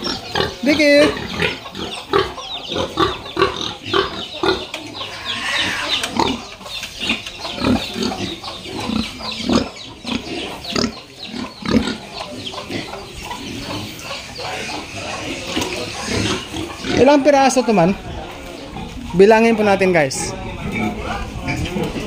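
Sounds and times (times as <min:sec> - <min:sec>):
pigs grunting: 0:00.0 - 0:17.5.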